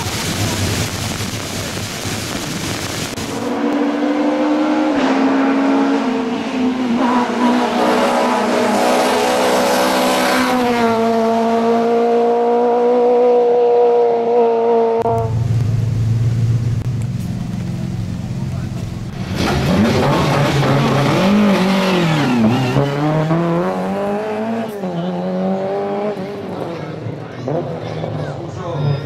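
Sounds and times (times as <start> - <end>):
steady rushing noise: 0.0 - 4.0
car engine at high revs: 0.0 - 28.3.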